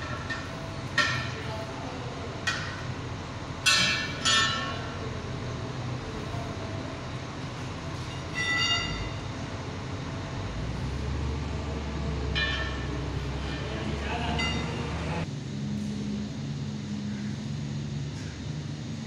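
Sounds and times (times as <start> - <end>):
tyre bar clanking on steel rim: 0.0 - 1.6, 2.4 - 2.9, 3.6 - 4.9, 8.2 - 9.2, 12.3 - 14.8
low machine hum: 0.0 - 19.0
metallic ring: 3.6 - 5.0, 8.0 - 9.3, 12.3 - 14.9.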